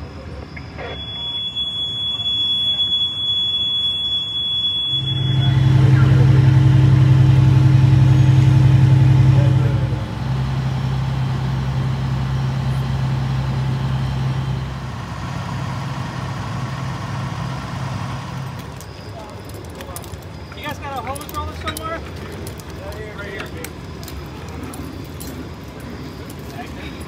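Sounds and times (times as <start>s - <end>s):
fire alarm high tone: 0.0s - 10.3s, 11.0s - 22.0s
large vehicle engine idling: 0.0s - 27.0s.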